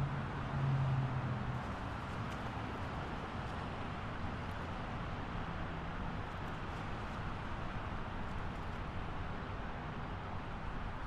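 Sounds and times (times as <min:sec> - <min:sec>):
highway traffic noise: 0:00.0 - 0:11.0.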